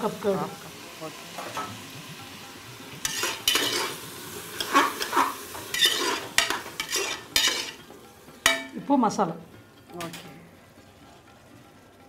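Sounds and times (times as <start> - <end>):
faint sizzle: 0.0 - 12.0
spoon scraping in a pot: 3.0 - 7.9.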